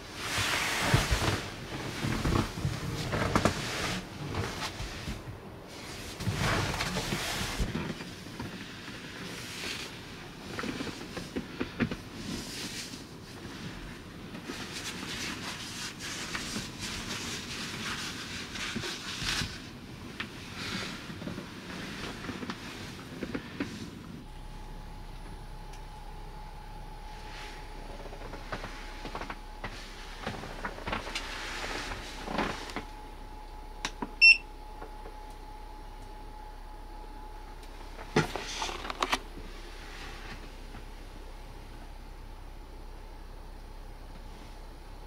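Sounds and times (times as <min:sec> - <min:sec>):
rustling on cushioned bench: 0:00.0 - 0:42.4.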